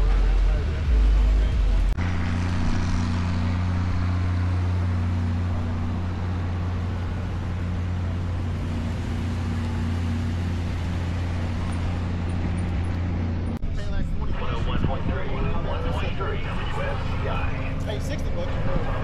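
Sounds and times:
vehicle engine idling: 0.0s - 19.0s.

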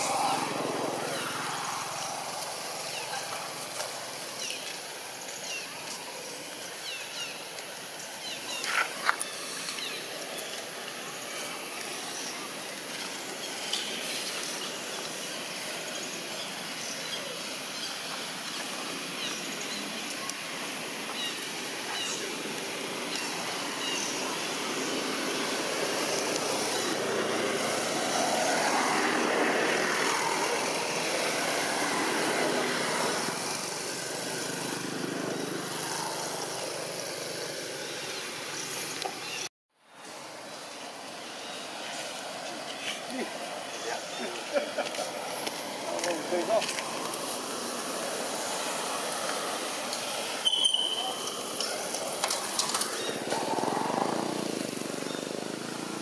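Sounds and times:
distant traffic: 0.0s - 39.5s, 40.4s - 56.0s
faint high chirps: 50.4s - 51.5s.

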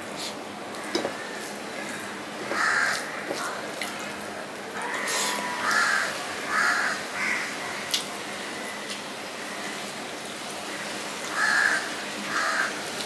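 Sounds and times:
crows cawing: 0.9s - 3.7s, 4.8s - 8.0s, 10.7s - 12.9s.

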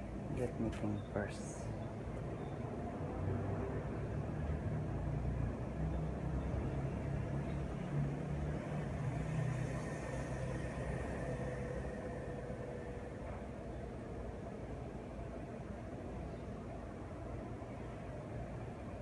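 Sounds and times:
low mechanical rumble: 0.0s - 19.0s
faint steady tones: 5.8s - 19.0s.

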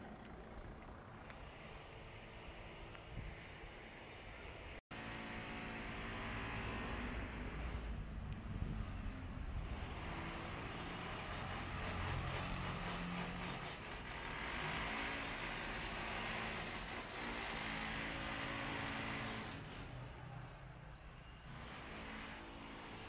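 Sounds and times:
vehicle engine hum: 0.0s - 4.6s.

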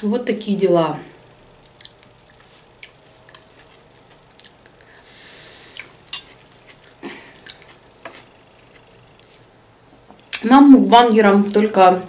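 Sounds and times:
person chewing food: 1.6s - 10.3s.

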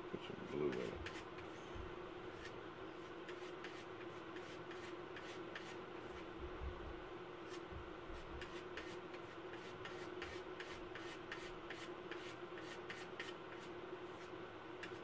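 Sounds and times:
steady low hum: 0.0s - 15.0s
paint scraping strokes: 0.4s - 1.6s, 2.3s - 6.2s, 8.2s - 15.0s.

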